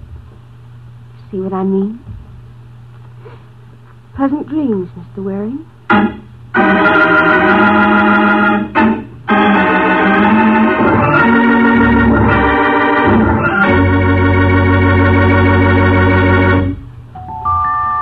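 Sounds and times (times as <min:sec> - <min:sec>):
organ chords: 0:05.8 - 0:18.0.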